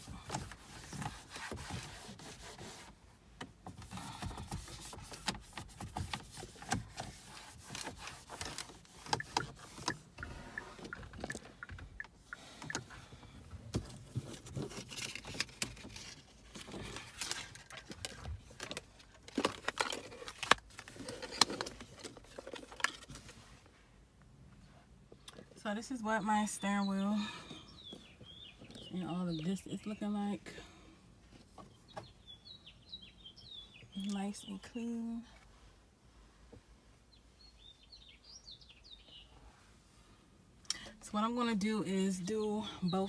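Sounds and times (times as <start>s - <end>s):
cloth rubbing on plastic: 0.0s - 3.0s, 3.8s - 10.8s.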